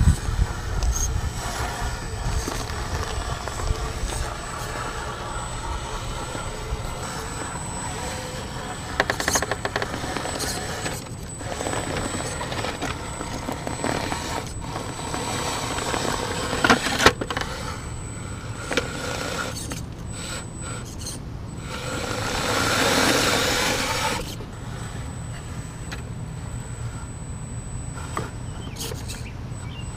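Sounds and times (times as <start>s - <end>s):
tyres scraping on rocks: 0.0s - 17.9s
electric motor whining: 0.0s - 29.9s.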